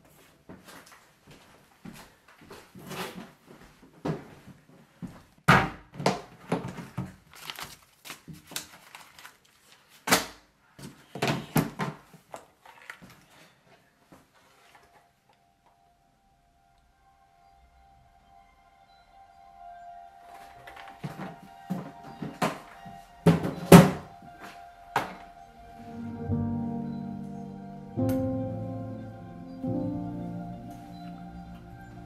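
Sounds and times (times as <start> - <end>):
plastic bag rustling: 6.4 - 10.0.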